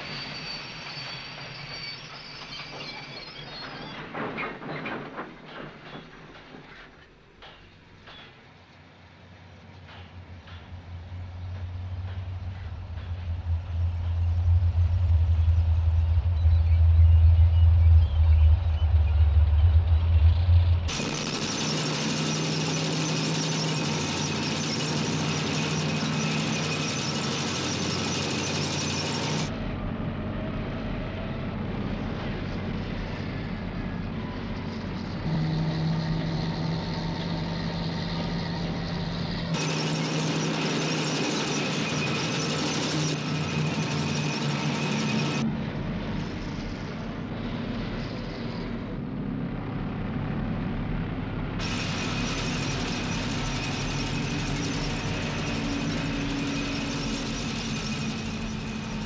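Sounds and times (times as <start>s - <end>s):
tank engine and track noise: 0.0s - 59.0s
low drone: 11.4s - 59.0s
deep hum: 35.2s - 39.4s.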